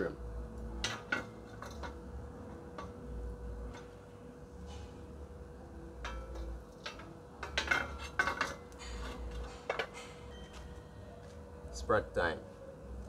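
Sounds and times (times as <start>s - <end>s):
metal pot clanking on grill rack: 0.8s - 2.0s, 6.0s - 10.2s.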